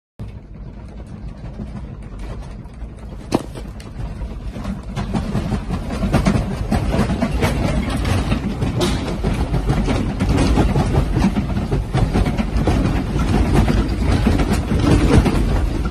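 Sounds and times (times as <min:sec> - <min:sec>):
earthquake low rumble: 0:00.2 - 0:15.9
furniture rattling and creaking: 0:00.9 - 0:15.9
sharp knock: 0:03.3 - 0:03.8.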